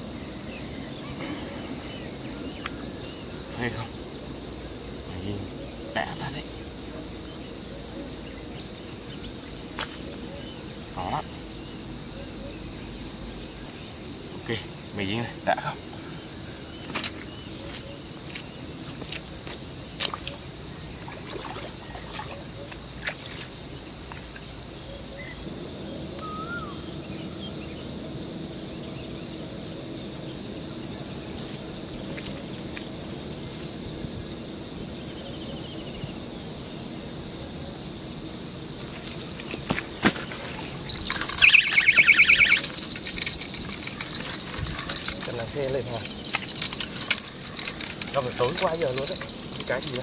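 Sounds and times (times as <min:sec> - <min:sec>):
high-pitched insect drone: 0:00.0 - 0:19.0, 0:40.4 - 0:50.0
jingling rattle: 0:40.6 - 0:50.0.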